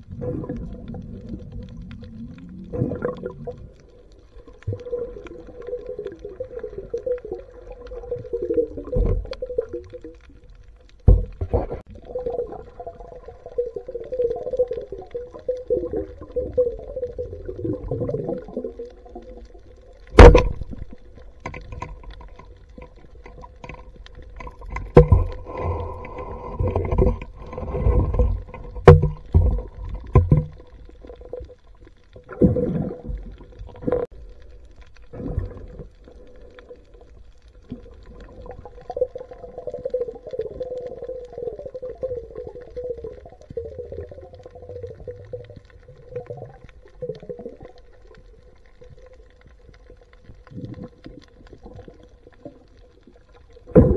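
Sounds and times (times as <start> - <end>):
underwater steady hum: 0.0 - 53.9
underwater knocks and thuds: 8.0 - 9.8, 10.9 - 11.9, 20.0 - 34.1, 53.6 - 53.9.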